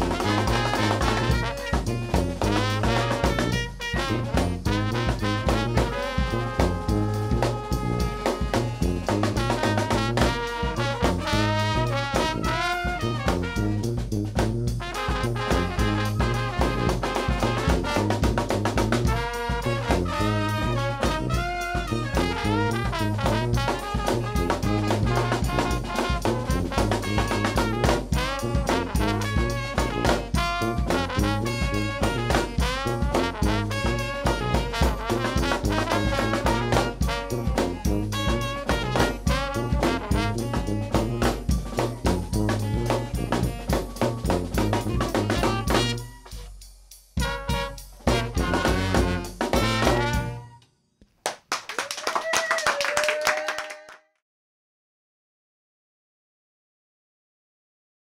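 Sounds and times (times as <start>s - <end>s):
sousaphone bass line: 0.0s - 46.5s, 47.2s - 50.6s
saxophone: 0.0s - 46.6s, 47.2s - 50.7s
bass drum and snare drum: 0.0s - 50.6s
trombone: 0.0s - 50.6s
trumpet: 0.0s - 50.9s
flute: 41.0s - 46.5s, 49.7s - 50.7s.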